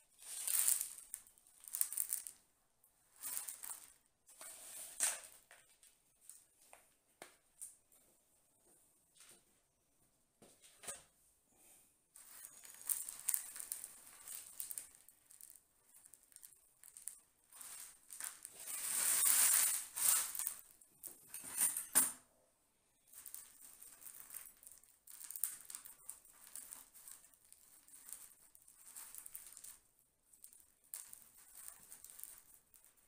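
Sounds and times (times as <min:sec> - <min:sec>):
soil grains pattering on plastic tray: 0:00.2 - 0:02.4, 0:12.2 - 0:20.7, 0:23.2 - 0:29.8.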